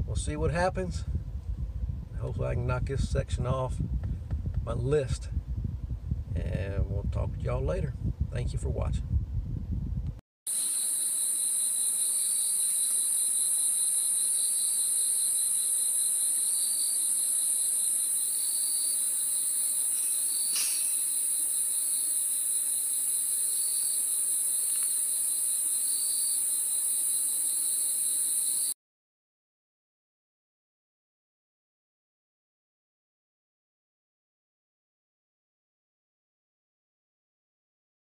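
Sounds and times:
high-pitched insect chorus: 0:10.5 - 0:28.8.

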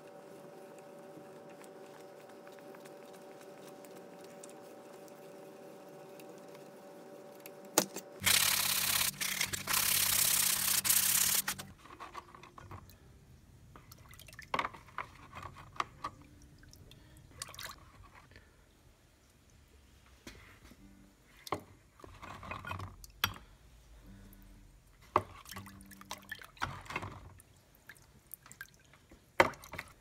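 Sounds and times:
liquid sloshing and dripping: 0:13.7 - 0:15.1, 0:16.0 - 0:18.5, 0:25.2 - 0:30.0.

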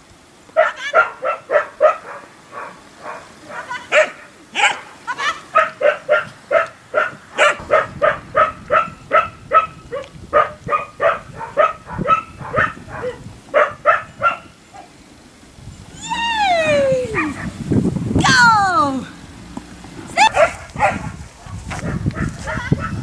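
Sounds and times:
dog barking: 0:00.6 - 0:14.9, 0:20.2 - 0:23.0
long falling cry: 0:15.9 - 0:17.4.

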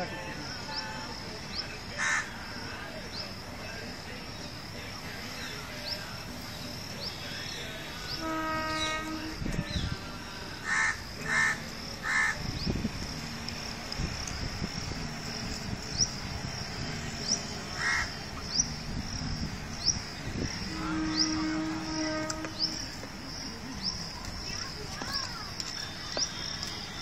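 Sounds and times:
steady horn-like tone: 0:07.3 - 0:11.6, 0:14.8 - 0:23.0
bird cawing: 0:17.8 - 0:18.1.

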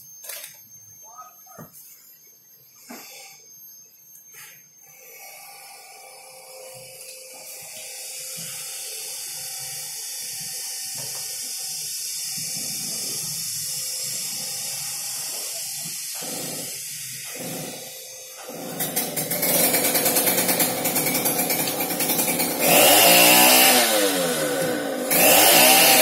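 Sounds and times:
chainsaw engine running: 0:16.2 - 0:26.0.

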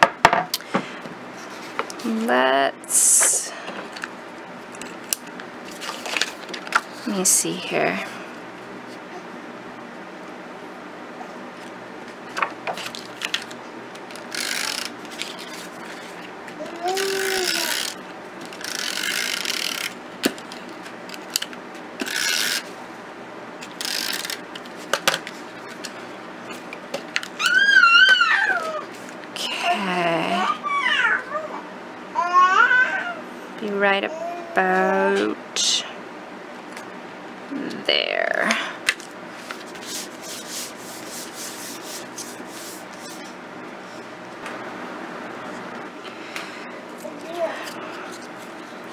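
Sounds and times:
tape runner rasping on paper: 0:14.1 - 0:20.6, 0:22.0 - 0:22.7, 0:23.6 - 0:24.9, 0:39.4 - 0:43.3
paper rubbing and sliding: 0:39.4 - 0:43.4.

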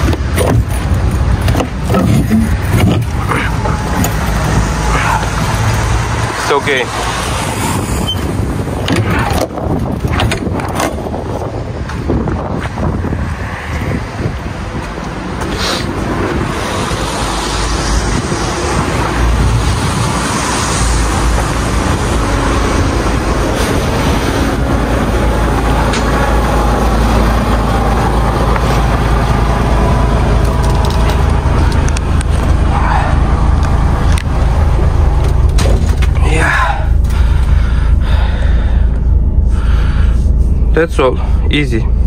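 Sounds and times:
diesel truck engine idling: 0:17.1 - 0:42.0.

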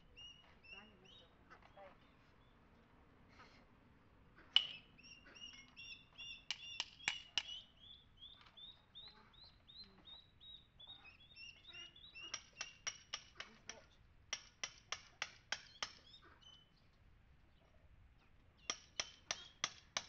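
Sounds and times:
small bird chirping: 0:00.1 - 0:02.6, 0:04.5 - 0:14.0, 0:15.5 - 0:19.7
hammer tapping on chisel: 0:04.6 - 0:04.8, 0:06.4 - 0:07.6, 0:12.3 - 0:16.0, 0:18.7 - 0:20.0.

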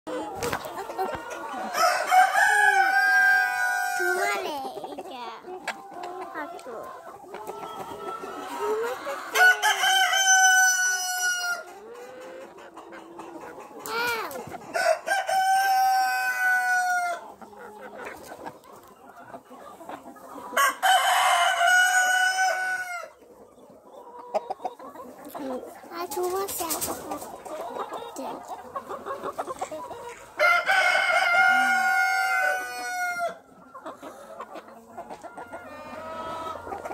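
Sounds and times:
hens clucking: 0:00.1 - 0:36.9
roosters crowing: 0:01.6 - 0:04.3, 0:09.2 - 0:11.7, 0:14.7 - 0:17.2, 0:20.6 - 0:23.1, 0:30.4 - 0:33.4
rooster crowing: 0:01.8 - 0:03.4.

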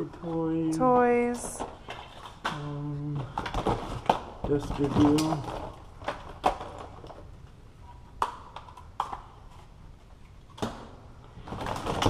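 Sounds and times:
objects clattering in plastic tote: 0:03.2 - 0:07.2, 0:11.4 - 0:12.0.

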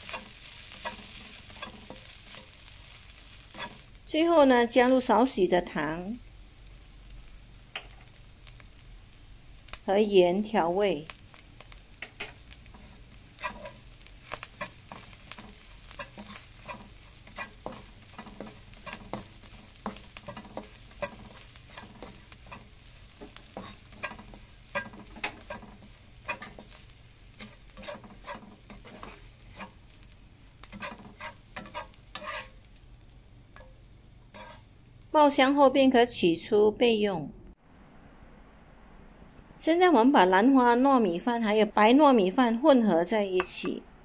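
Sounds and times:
spatula scraping and tapping pan: 0:00.0 - 0:03.9, 0:12.0 - 0:32.7, 0:33.5 - 0:34.7
faint sizzle: 0:00.0 - 0:38.0.

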